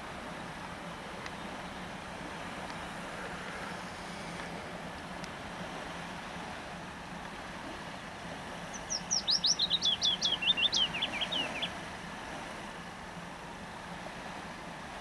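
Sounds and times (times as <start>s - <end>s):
songbird singing: 0.2s - 12.2s.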